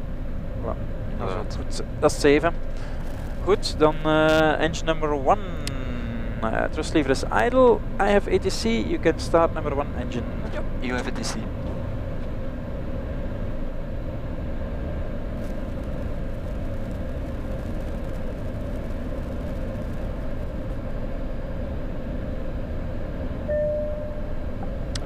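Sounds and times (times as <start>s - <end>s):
aircraft engine rumble: 0.0s - 25.0s
steady hum: 0.0s - 25.0s
short beep: 23.5s - 24.4s.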